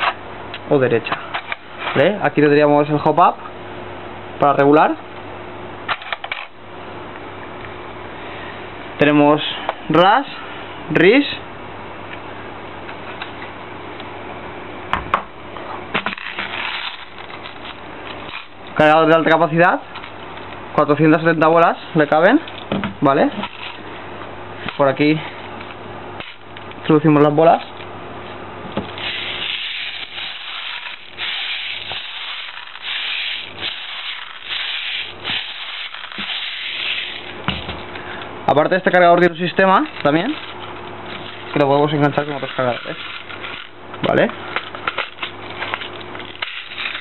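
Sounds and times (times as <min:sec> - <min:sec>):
plastic pellets pouring rattle: 0:16.1 - 0:17.8, 0:29.0 - 0:37.3, 0:41.2 - 0:43.7, 0:44.9 - 0:47.0.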